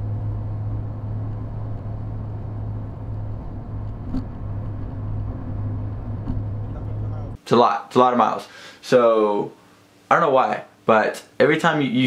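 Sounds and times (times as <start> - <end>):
car engine and road noise drone: 0.0 - 7.4.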